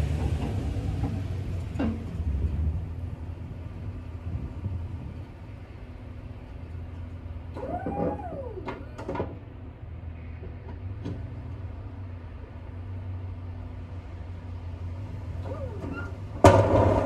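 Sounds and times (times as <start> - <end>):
pickup truck rumble driving off: 0.0 - 5.2, 15.0 - 17.0.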